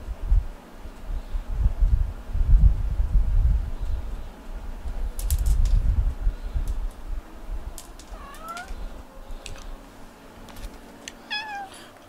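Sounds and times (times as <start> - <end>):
cat meowing: 8.1 - 8.8, 11.3 - 11.9.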